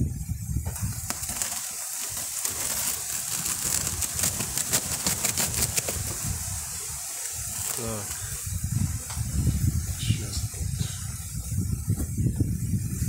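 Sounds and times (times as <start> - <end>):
cloth crackling and rustling: 0.8 - 6.3, 7.2 - 8.3.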